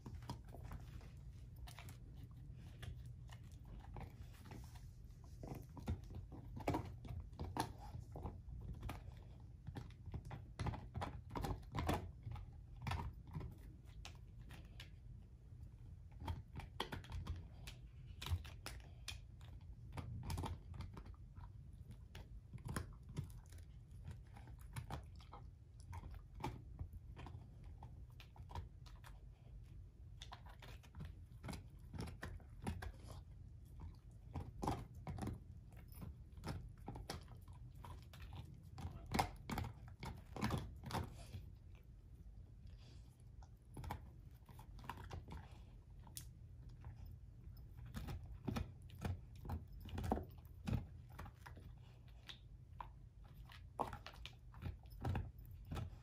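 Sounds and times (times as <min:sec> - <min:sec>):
dog chewing and crunching bone: 0:00.0 - 0:56.0.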